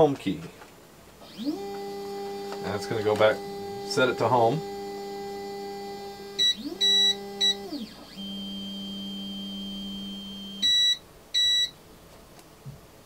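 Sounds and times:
stepper motor whining: 1.2s - 11.5s
short electronic beeps: 6.4s - 11.7s.

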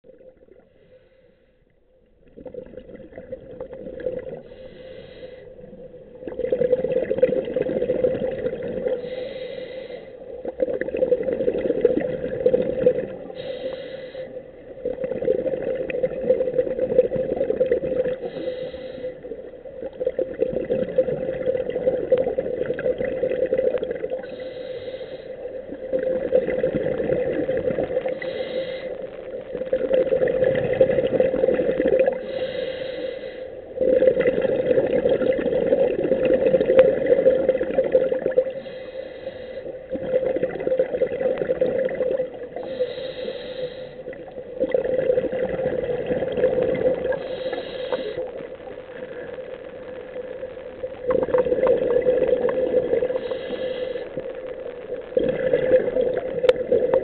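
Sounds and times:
exhaled bubbles rumbling: 2.0s - 4.9s, 5.5s - 9.1s, 10.3s - 13.5s, 14.4s - 18.5s, 19.2s - 24.5s, 25.5s - 28.3s, 29.3s - 32.4s, 33.7s - 38.6s, 39.8s - 42.9s, 44.0s - 57.0s
scuba regulator hiss: 4.5s - 5.5s, 9.0s - 10.1s, 13.3s - 14.4s, 18.2s - 19.2s, 24.2s - 25.4s, 28.1s - 29.0s, 32.2s - 33.6s, 38.6s - 39.7s, 42.6s - 44.0s, 47.1s - 48.3s, 53.2s - 54.1s.

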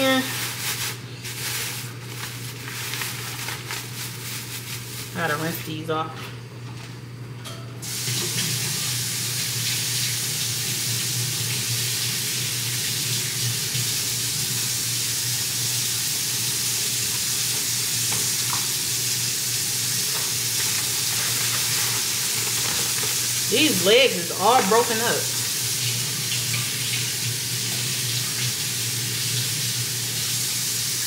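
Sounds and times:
kitchen tap running: 0.0s - 1.0s, 7.8s - 31.0s.

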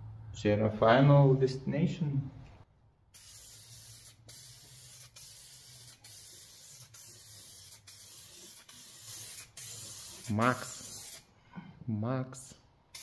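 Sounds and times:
spray-paint can hissing: 3.1s - 11.3s.

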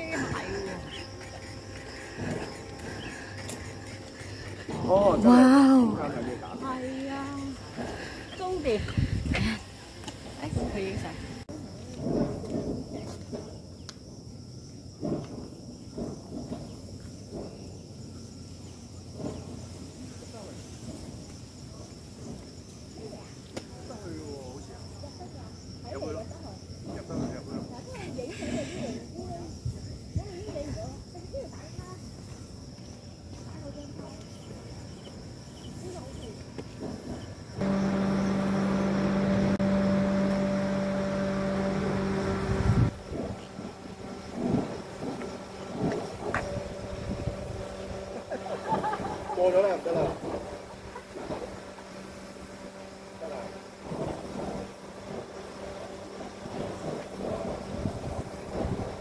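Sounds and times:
insects droning: 0.0s - 59.0s
low mechanical hum: 37.6s - 59.0s.

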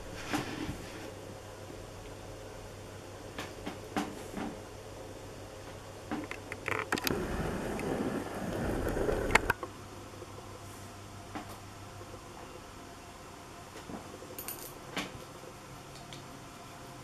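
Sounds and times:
low rubbing rumble: 7.0s - 9.6s.

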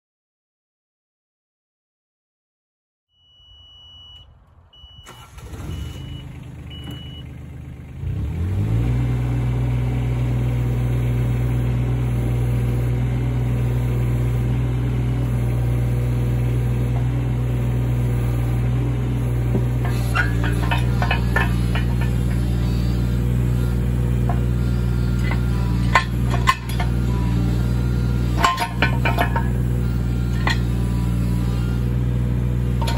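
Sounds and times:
short high beeps: 3.2s - 7.3s
diesel engine cranking and idling: 4.2s - 32.9s.

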